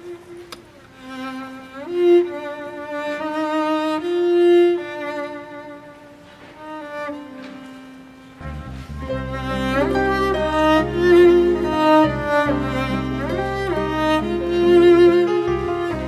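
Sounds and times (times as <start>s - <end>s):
violin playing held notes: 0.0s - 16.0s
lower strings: 8.1s - 16.0s
deep bass notes: 8.4s - 16.0s.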